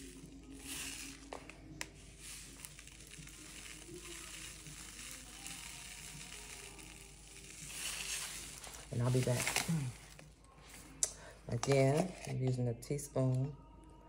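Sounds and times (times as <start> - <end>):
plastic pouch crinkling: 0.0 - 10.4.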